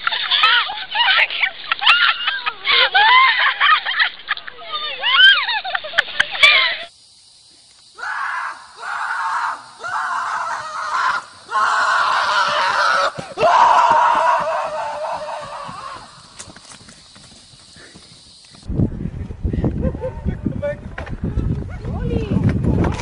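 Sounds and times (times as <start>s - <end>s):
person screaming: 8.0s - 16.2s.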